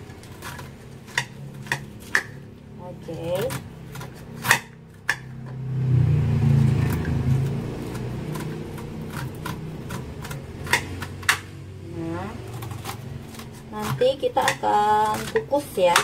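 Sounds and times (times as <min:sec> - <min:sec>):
low motor hum: 0:00.0 - 0:15.9
knife scraping corn kernels: 0:12.4 - 0:16.0.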